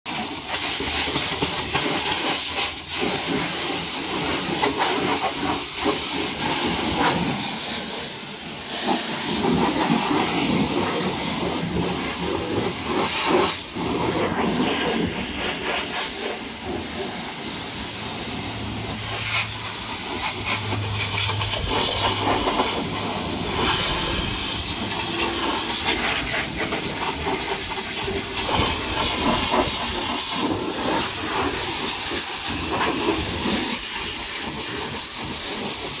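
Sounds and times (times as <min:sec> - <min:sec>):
pressure washer spraying water: 0:00.1 - 0:36.0.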